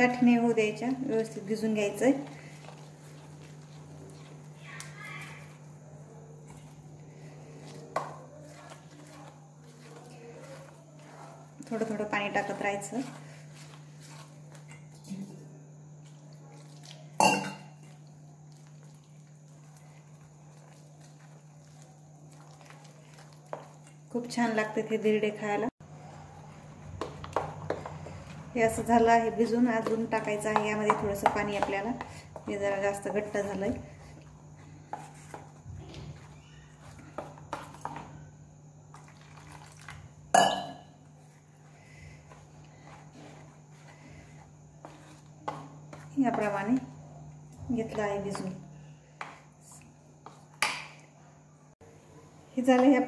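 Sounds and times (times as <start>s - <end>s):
spoon scraping batter in bowl: 2.1s - 4.5s, 6.4s - 15.3s, 17.8s - 24.4s, 27.0s - 38.2s, 41.2s - 46.9s
spoon clinking in steel bowl: 17.2s - 17.8s.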